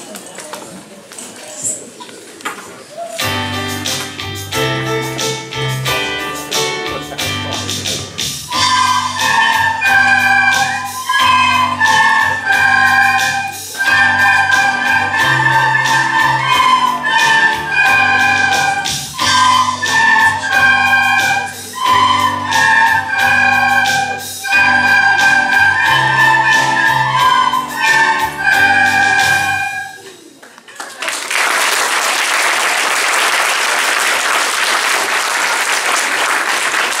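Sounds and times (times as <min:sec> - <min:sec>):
children playing recorders: 0:08.5 - 0:30.4
audience applauding: 0:30.4 - 0:37.0.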